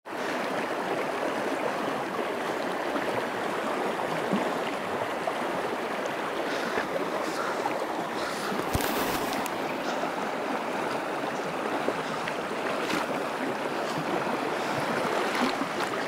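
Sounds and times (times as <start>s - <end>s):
river water rushing over stones: 0.1s - 16.0s.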